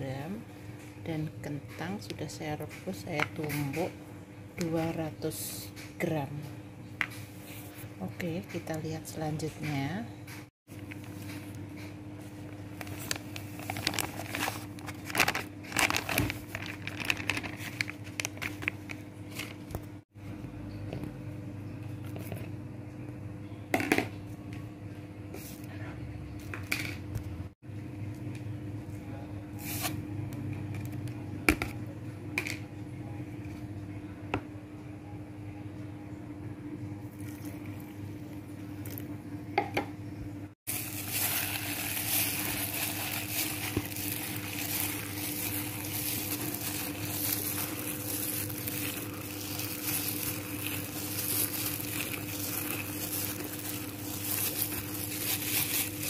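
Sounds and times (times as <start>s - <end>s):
hand mixing flour rustling: 40.7s - 56.0s.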